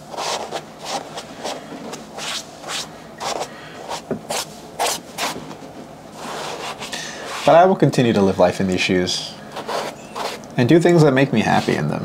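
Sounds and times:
brush scrubbing fabric: 0.0 - 5.4, 6.2 - 7.6, 9.6 - 10.4, 11.4 - 12.0.

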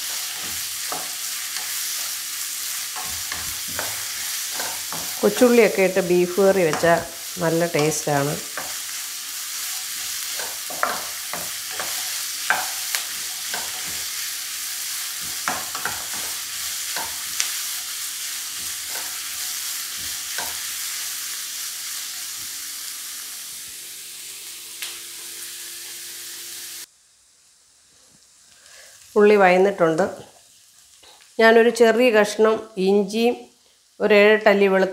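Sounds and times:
onions sizzling in oil: 0.0 - 34.9.

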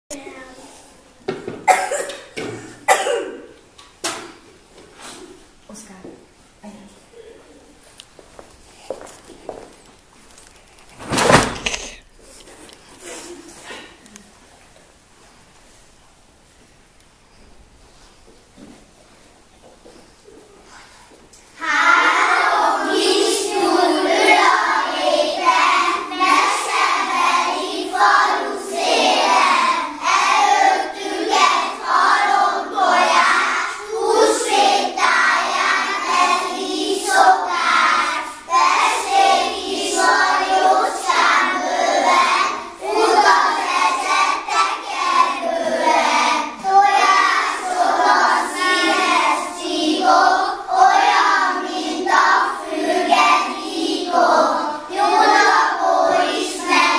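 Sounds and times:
children singing together: 21.5 - 56.9.

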